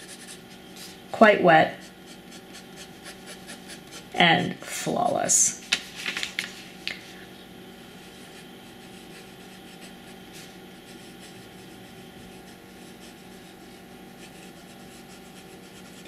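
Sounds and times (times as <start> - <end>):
low room hum: 0.0 - 16.0
pen scratching on paper: 1.8 - 4.2, 8.2 - 16.0.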